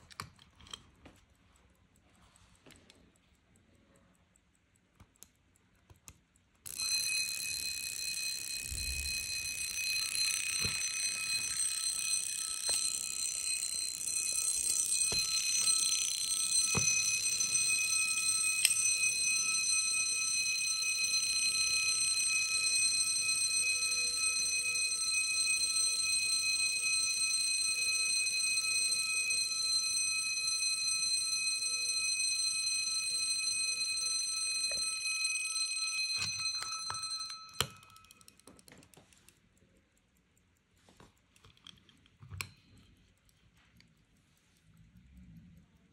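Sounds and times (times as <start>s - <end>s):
pocket watch alarm ringing: 6.7s - 38.5s.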